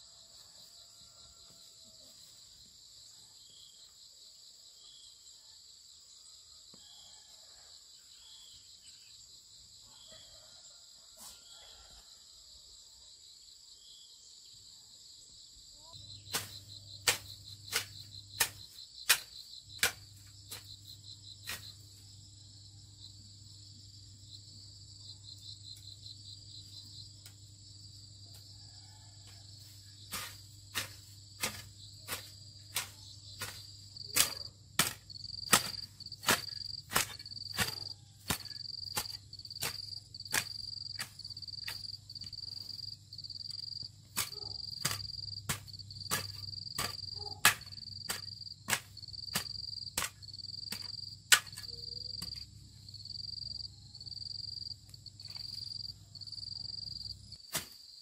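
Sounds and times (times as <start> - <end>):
insects chirping: 11.7 - 58.0
hoe chopping into soil: 16.3 - 20.7, 30.1 - 41.9, 44.1 - 52.4, 57.5 - 57.8.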